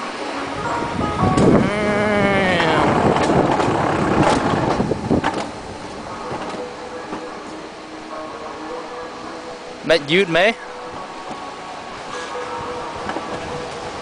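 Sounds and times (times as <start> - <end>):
coaster sled rattling on rails: 0.0 - 14.0
tone sliding down in pitch: 1.2 - 3.0.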